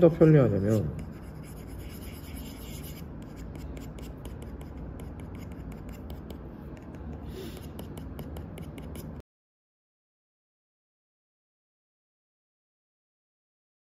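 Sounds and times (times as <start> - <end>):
low room hum: 0.0 - 9.2.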